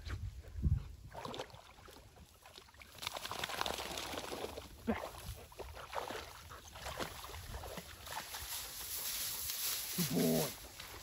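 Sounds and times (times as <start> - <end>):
dog splashing in water: 1.1 - 8.9.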